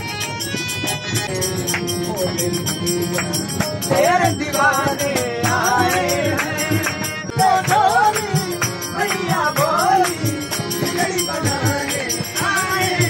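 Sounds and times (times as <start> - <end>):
harmonium: 0.0 - 13.0
tabla drum beating: 0.0 - 13.0
man singing: 0.9 - 7.4.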